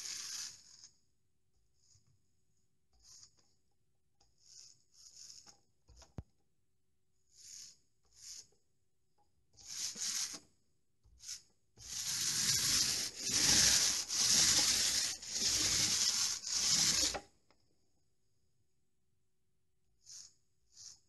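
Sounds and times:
paint roller rubbing on wall: 0:00.0 - 0:01.0, 0:02.9 - 0:03.6, 0:04.2 - 0:06.2, 0:07.2 - 0:08.6, 0:09.5 - 0:17.3, 0:20.0 - 0:21.0.

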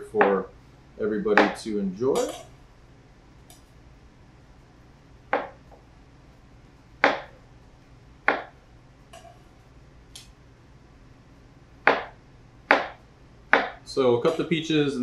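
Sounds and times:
knife chopping on cutting board: 0:07.0 - 0:07.4, 0:08.3 - 0:08.5, 0:11.9 - 0:14.4.

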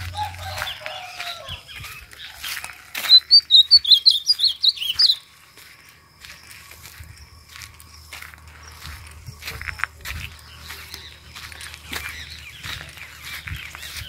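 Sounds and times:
bird singing high notes: 0:03.1 - 0:05.3
soft whistled bird notes: 0:03.1 - 0:08.8.

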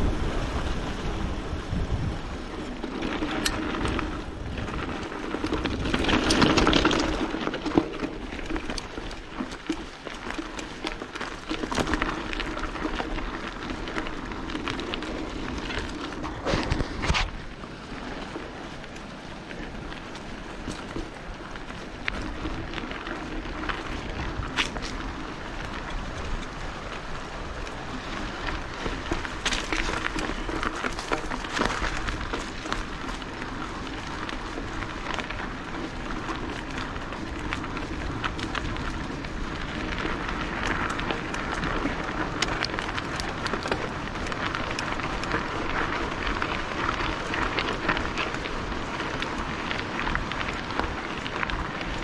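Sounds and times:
bike tyres on dirt trail: 0:00.0 - 0:52.0
small clicks and rattles: 0:02.7 - 0:17.3.

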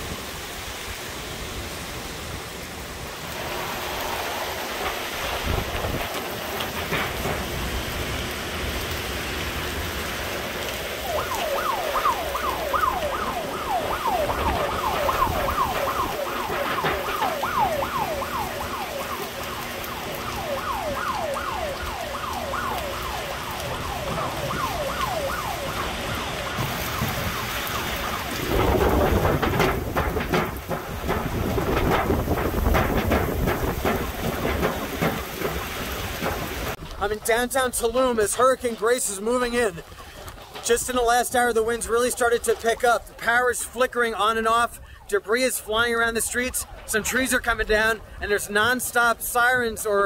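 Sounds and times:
strong wind: 0:00.0 - 0:37.1
heavy rain: 0:00.0 - 0:50.0.

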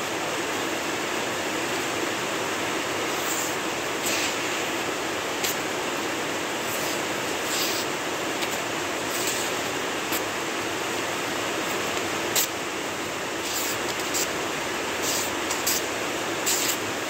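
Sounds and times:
steady background hiss: 0:00.0 - 0:17.0
knife slicing paper rasps: 0:06.6 - 0:07.9, 0:13.4 - 0:14.3, 0:15.0 - 0:16.8.

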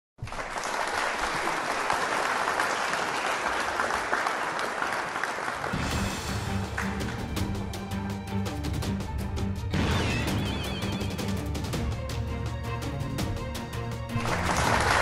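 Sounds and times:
audience applauding: 0:00.2 - 0:07.9, 0:14.1 - 0:15.0.

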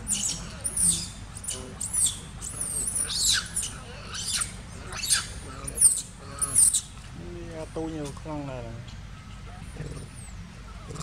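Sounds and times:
infant monkey squealing: 0:00.0 - 0:06.9.

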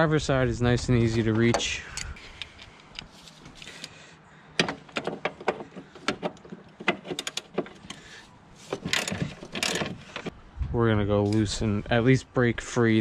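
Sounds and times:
ratchet clicks rattling: 0:08.7 - 0:10.3.

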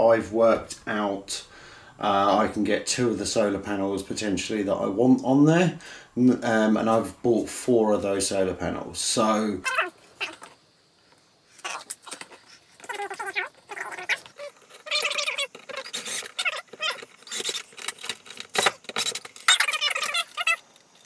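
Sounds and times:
high squeaky chirping: 0:09.6 - 0:10.6, 0:11.6 - 0:20.8
parts clattering against wood: 0:14.2 - 0:21.0.

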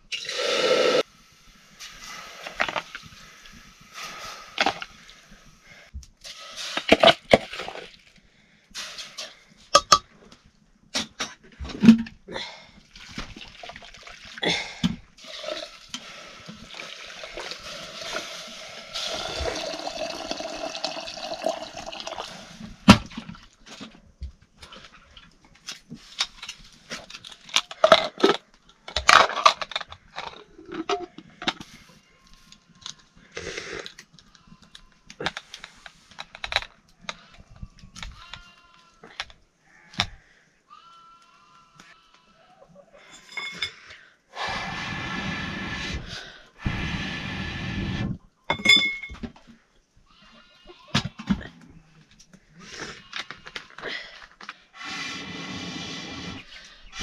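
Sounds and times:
water pouring and splashing: 0:06.2 - 0:08.2, 0:12.8 - 0:23.9.

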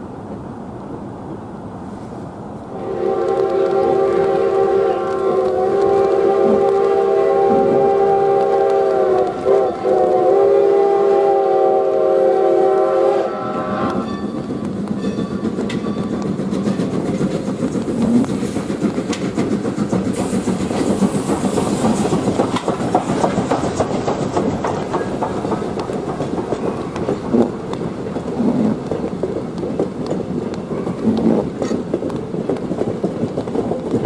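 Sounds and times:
steam locomotive whistle: 0:02.7 - 0:14.3
train wheels clicking over rail joints: 0:03.0 - 0:10.4, 0:13.4 - 0:34.0.

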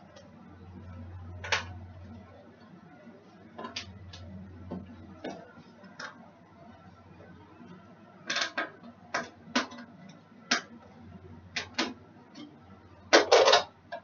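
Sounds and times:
dishes and utensils clinking: 0:13.1 - 0:13.8.

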